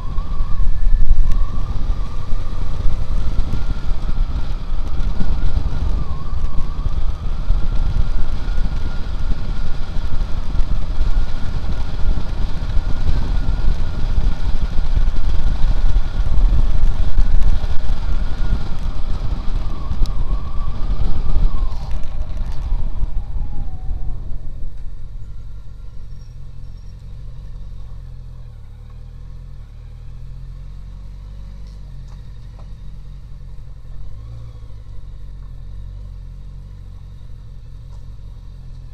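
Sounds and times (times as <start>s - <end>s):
wind noise: 0.0s - 28.0s
motorcycle engine running: 0.0s - 38.9s.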